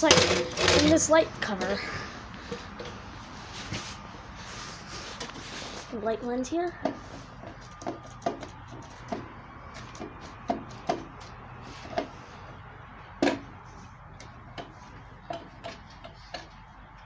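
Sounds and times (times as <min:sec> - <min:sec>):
sharp clicks and light knocks: 0:14.2 - 0:17.0.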